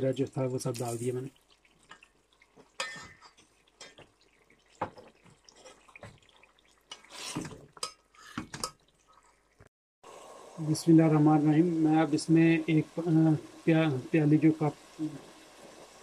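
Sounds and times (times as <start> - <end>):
metal spatula scraping metal pot: 2.8 - 4.0, 6.9 - 8.8.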